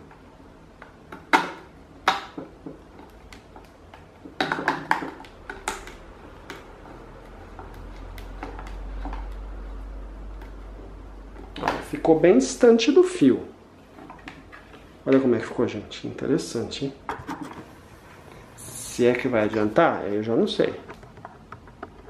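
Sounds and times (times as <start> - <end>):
plastic fan parts clicking: 0.8 - 12.0.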